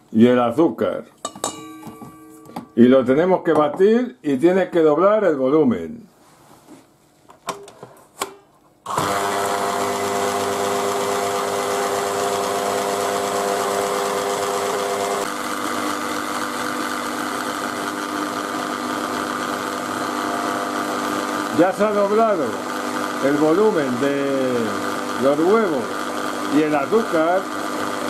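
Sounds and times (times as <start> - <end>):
electric mixer whipping: 8.9 - 28.0.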